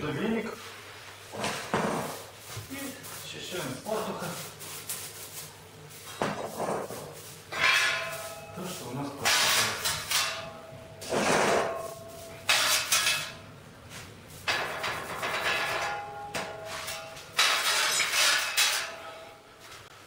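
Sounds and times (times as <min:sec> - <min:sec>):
brush scraping ash: 0:02.0 - 0:18.9
metal pan and bucket clinking: 0:07.5 - 0:13.4, 0:14.4 - 0:19.4.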